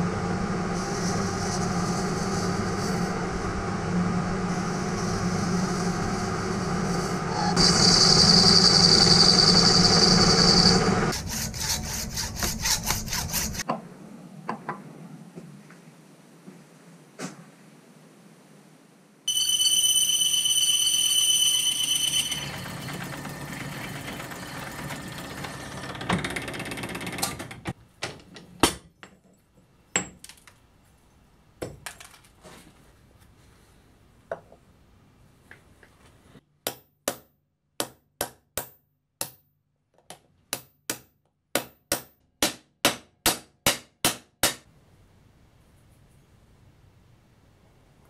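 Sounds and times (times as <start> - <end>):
lathe rough cutting noise: 0.0 - 13.6, 20.6 - 26.1
lathe tool squeal: 4.7 - 11.8, 19.3 - 25.7.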